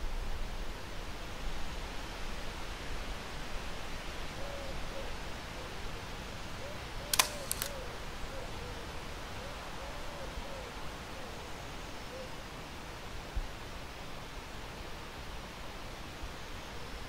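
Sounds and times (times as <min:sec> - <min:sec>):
outdoor hiss: 0:00.0 - 0:08.3
camera shutter firing: 0:07.1 - 0:07.8
shutter recocking clicks: 0:07.1 - 0:07.8.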